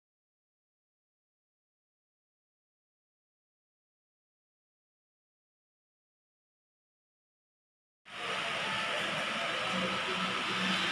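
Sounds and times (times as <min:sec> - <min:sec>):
faint hum: 0:08.1 - 0:10.9.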